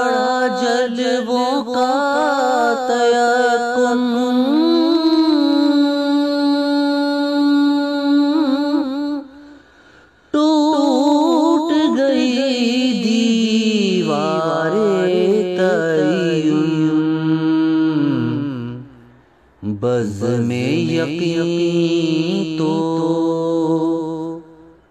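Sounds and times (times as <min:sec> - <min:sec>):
person singing devotional song: 0:00.0 - 0:24.9.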